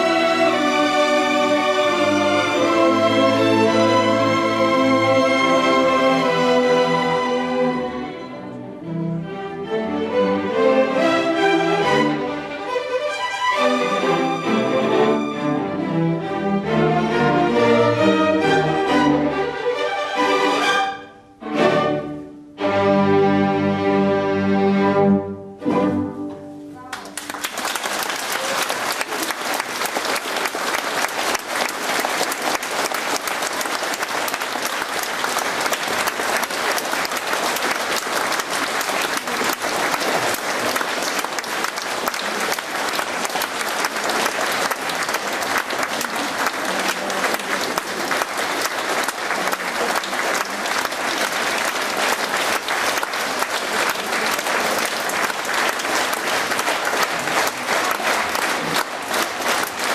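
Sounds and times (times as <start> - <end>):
audience applause: 0.0 - 7.8, 26.8 - 59.9.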